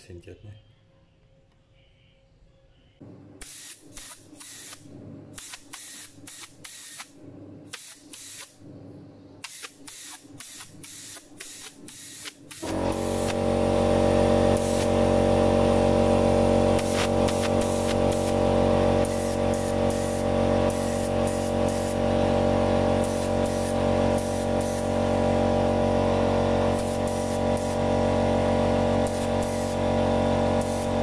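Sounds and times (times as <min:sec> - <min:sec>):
spray paint hissing bursts: 0:03.4 - 0:07.1, 0:07.7 - 0:08.6, 0:09.4 - 0:13.5, 0:14.5 - 0:15.1, 0:16.7 - 0:25.8, 0:26.6 - 0:28.0, 0:28.7 - 0:31.0.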